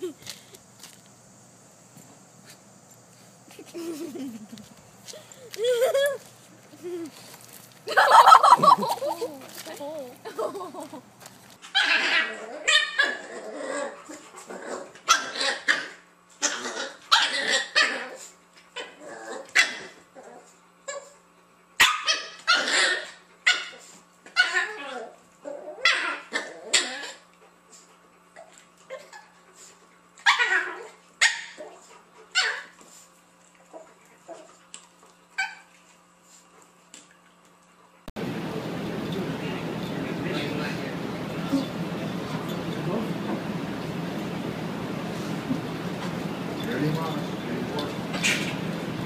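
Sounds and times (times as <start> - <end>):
dogs barking and yipping: 7.9 - 9.6, 11.6 - 14.0, 15.0 - 18.9, 21.8 - 25.0, 30.2 - 32.8, 38.2 - 49.0
dog growling: 11.8 - 18.2, 18.8 - 20.5, 24.5 - 27.2
dog barking: 21.8 - 22.7.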